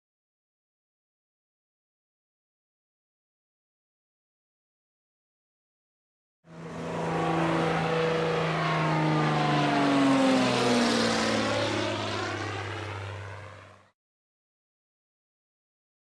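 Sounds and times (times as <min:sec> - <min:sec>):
engine passing by: 0:06.5 - 0:13.9.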